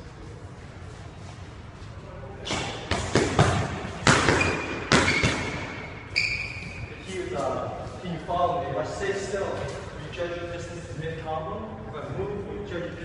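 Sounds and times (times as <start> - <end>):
boxing glove punches: 2.5 - 5.7
sneakers squeaking on wooden floor: 3.4 - 7.4.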